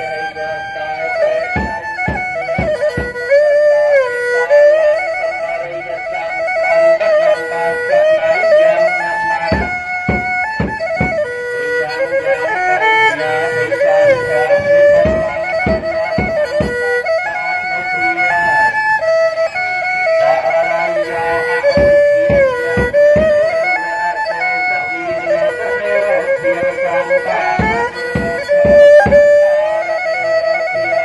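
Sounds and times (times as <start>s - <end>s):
reedy wind instrument melody: 0.0s - 31.0s
low drum strokes: 9.5s - 11.3s, 13.5s - 16.9s, 27.5s - 29.3s.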